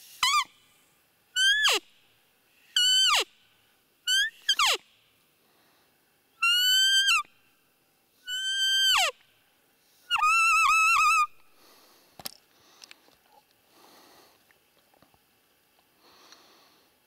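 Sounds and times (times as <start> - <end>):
deer whistle-like calls: 0.2 - 0.5, 1.4 - 1.8, 2.8 - 3.3, 4.1 - 4.8, 6.4 - 7.3, 8.3 - 9.2, 10.1 - 11.4.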